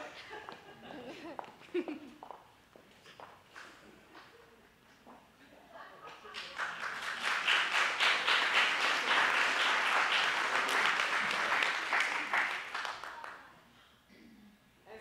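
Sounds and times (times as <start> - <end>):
audience applauding: 6.3 - 13.5.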